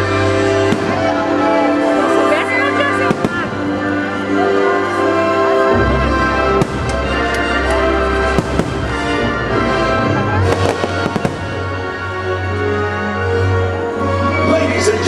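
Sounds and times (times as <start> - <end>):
loud music with sustained tones: 0.0 - 15.0
fireworks bangs and crackles: 0.3 - 2.1, 2.8 - 4.2, 6.0 - 12.2.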